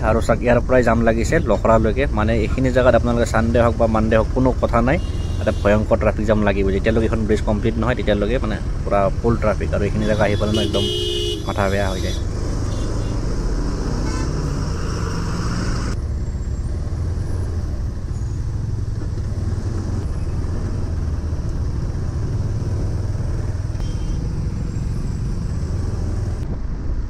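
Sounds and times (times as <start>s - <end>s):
trucks and cars passing: 0.0s - 27.0s
motorcycle engine drone: 6.9s - 26.7s.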